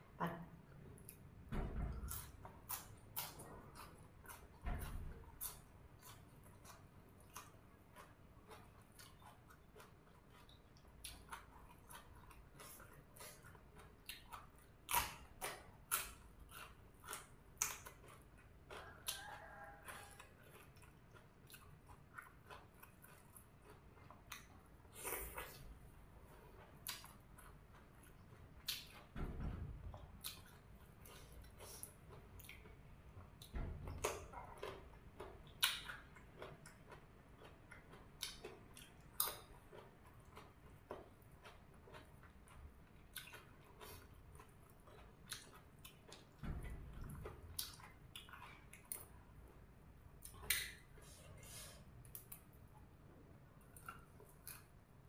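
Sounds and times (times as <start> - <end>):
person chewing: 0.7 - 29.2, 29.9 - 46.4, 47.0 - 55.0
soft mouth clicks and smacks: 50.2 - 52.6, 53.6 - 54.8.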